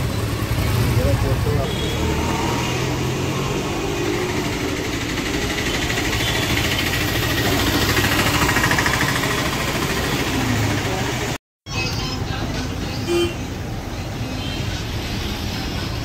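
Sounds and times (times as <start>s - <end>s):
street traffic: 0.0s - 16.0s
vehicle engine idling: 4.2s - 11.4s.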